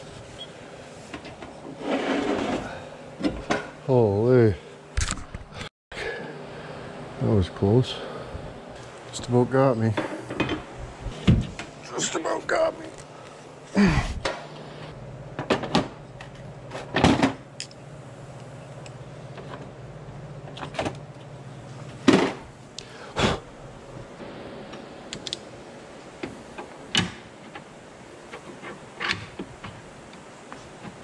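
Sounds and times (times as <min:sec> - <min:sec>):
low hum: 0:00.0 - 0:25.6.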